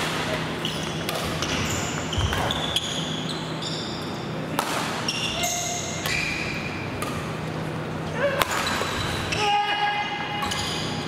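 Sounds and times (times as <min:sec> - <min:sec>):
shoes squeaking on gym floor: 0:00.6 - 0:04.4, 0:08.5 - 0:09.4
racket hitting shuttlecock: 0:01.0 - 0:01.6, 0:04.5 - 0:06.2.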